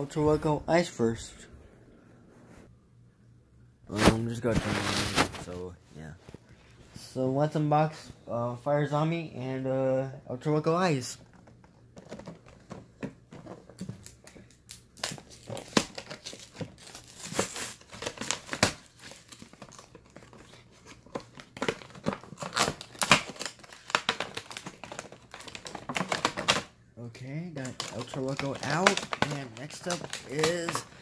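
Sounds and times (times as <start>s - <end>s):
cardboard and plastic crinkling: 3.9s - 5.7s, 11.2s - 26.7s, 27.6s - 31.0s
packaging clicks and snaps: 27.6s - 31.0s.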